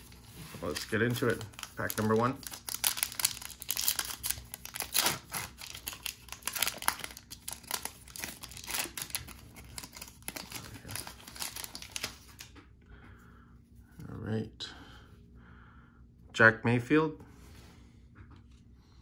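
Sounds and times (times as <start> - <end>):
plastic wrapper tearing and crinkling: 0.0 - 12.5.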